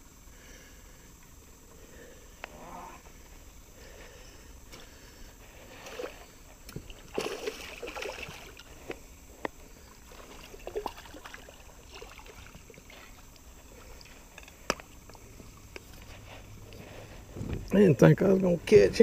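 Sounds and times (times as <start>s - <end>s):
fish splashing in water: 5.8s - 8.7s, 9.9s - 14.2s.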